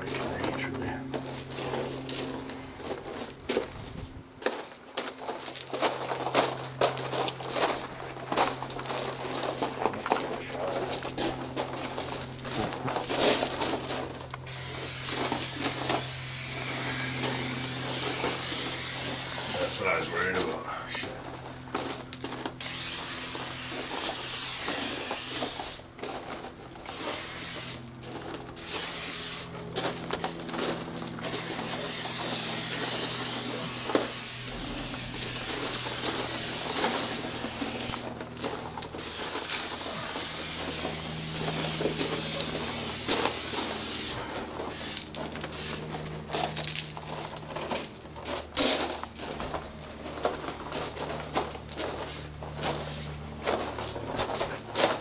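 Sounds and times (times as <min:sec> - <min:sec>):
spray paint can hissing: 0:14.5 - 0:20.4, 0:22.6 - 0:25.8, 0:26.8 - 0:27.8, 0:28.6 - 0:29.5, 0:31.2 - 0:38.0, 0:39.0 - 0:45.9, 0:52.0 - 0:53.1.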